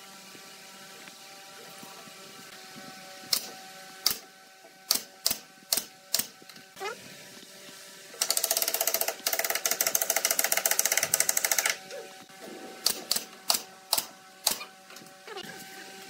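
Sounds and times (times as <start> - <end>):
fast mechanical clicking rattle: 8.2 - 11.8.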